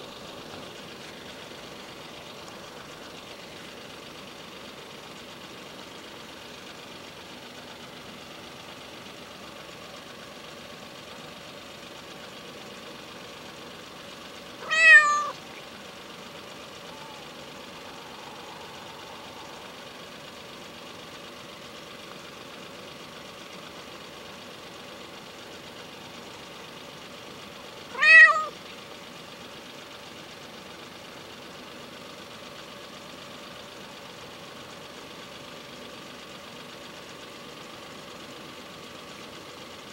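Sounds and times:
faint steady hum: 14.2 - 24.8
cat meowing: 14.6 - 15.4, 27.9 - 28.6.

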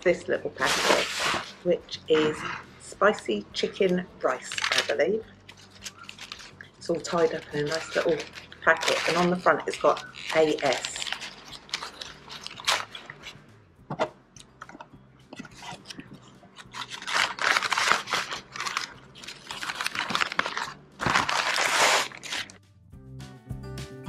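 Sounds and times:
paper and plastic bag crinkling: 0.4 - 2.5, 4.4 - 13.4, 15.3 - 22.6.

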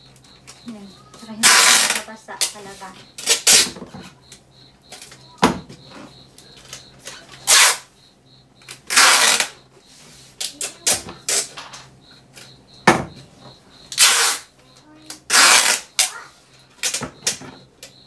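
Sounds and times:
packing tape pulled off roll: 14.0 - 14.4, 15.3 - 16.1.

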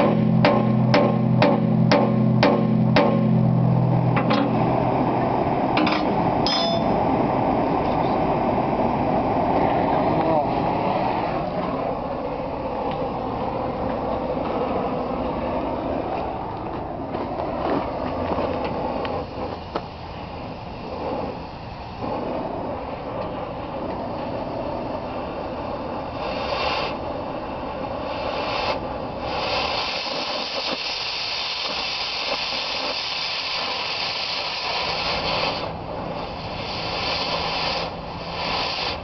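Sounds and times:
cutting torch flame hiss: 4.1 - 39.0
sharp hiss of cutting jet: 26.1 - 27.0, 28.0 - 39.0.

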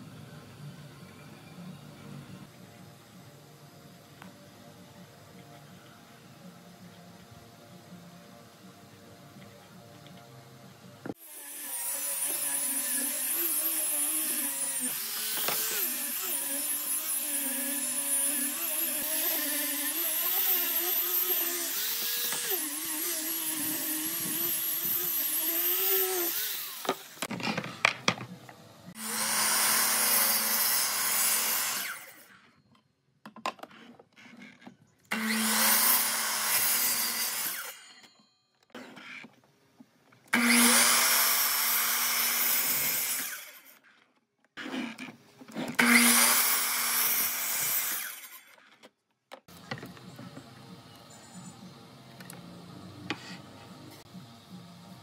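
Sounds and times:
miter saw cutting board: 11.1 - 27.7, 29.0 - 32.3, 35.1 - 37.9, 40.3 - 43.8, 44.6 - 48.6
angle grinder sanding wood: 11.2 - 27.3.

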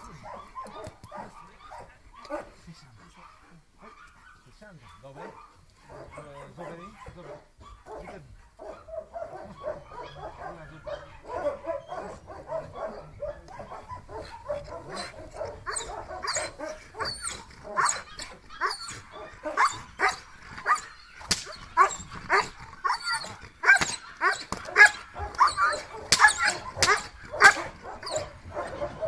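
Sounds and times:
dog barking: 0.1 - 29.0
dog whining and yipping: 8.6 - 29.0.

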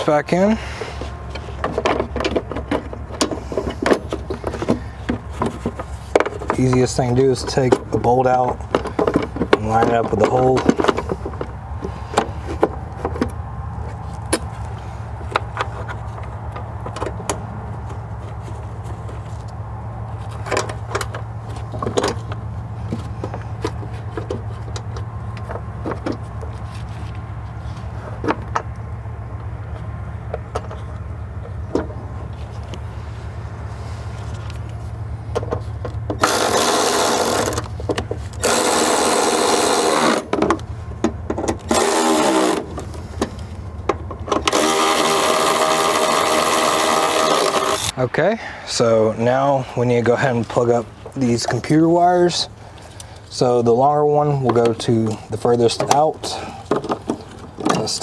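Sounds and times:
electric ratchet running: 36.2 - 37.7, 38.4 - 40.3, 41.6 - 42.7, 44.4 - 47.9.

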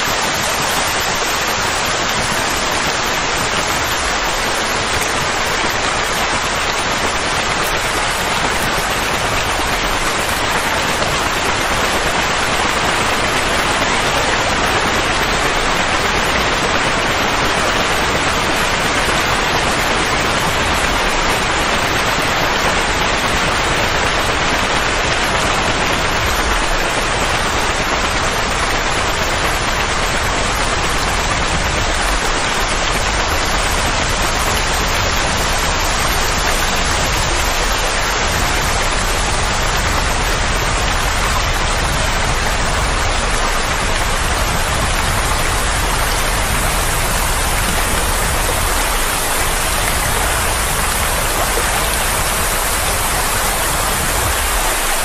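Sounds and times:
steady white noise rushing: 31.5 - 55.0.

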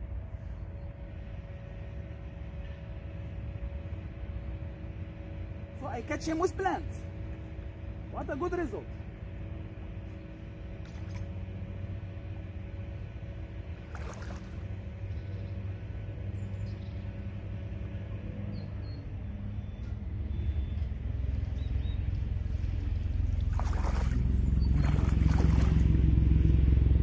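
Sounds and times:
water around wading boots: 10.6 - 11.7, 13.7 - 15.2, 21.3 - 26.6
wind rumble on microphone: 18.0 - 27.0.

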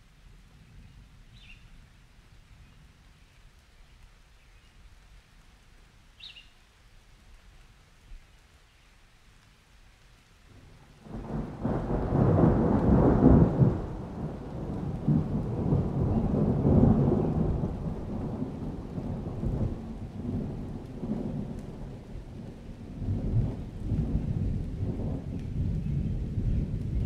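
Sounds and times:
light rain: 0.0 - 27.0
thunder rumbling: 10.6 - 27.0.

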